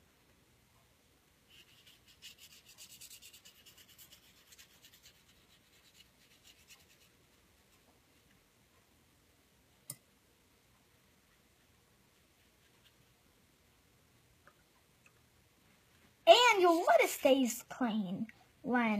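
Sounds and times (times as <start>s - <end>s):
paintbrush scratching on paper: 1.5s - 8.2s, 12.0s - 13.2s, 16.3s - 17.2s.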